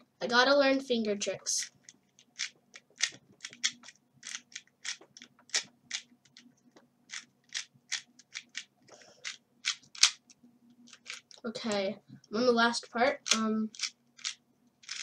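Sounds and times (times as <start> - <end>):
plastic cube clicking: 1.8 - 6.4, 7.1 - 10.3, 10.9 - 11.4, 13.1 - 15.0.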